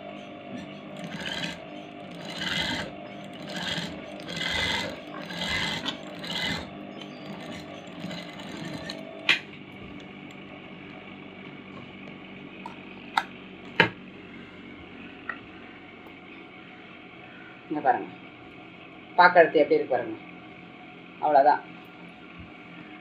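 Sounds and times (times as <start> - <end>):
steady hum: 0.0 - 23.0
sewing machine stitching: 0.5 - 10.3.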